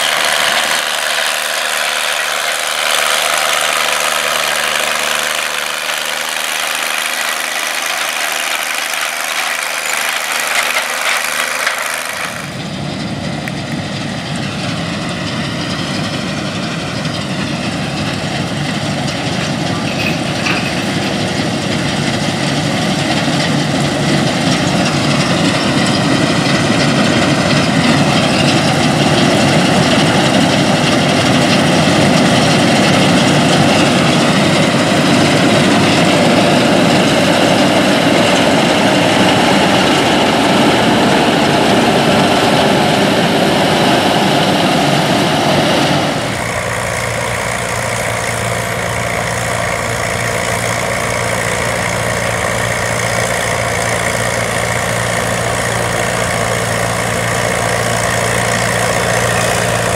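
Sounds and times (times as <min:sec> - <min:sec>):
combine harvester running: 0:00.0 - 0:59.9.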